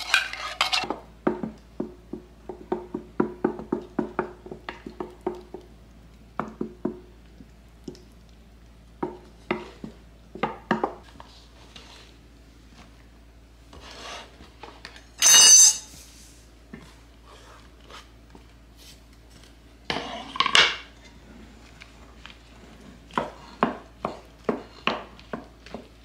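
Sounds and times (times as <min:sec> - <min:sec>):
scraping on cutting board: 0:00.0 - 0:00.9, 0:13.7 - 0:14.5, 0:19.9 - 0:20.4
loud ringing scrape: 0:15.2 - 0:16.0.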